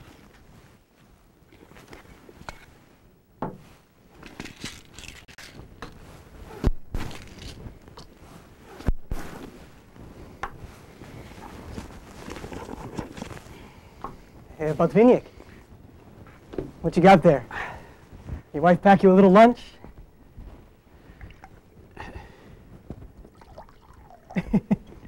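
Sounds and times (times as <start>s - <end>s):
rustling and scraping: 0.0s - 18.6s, 19.2s - 23.4s.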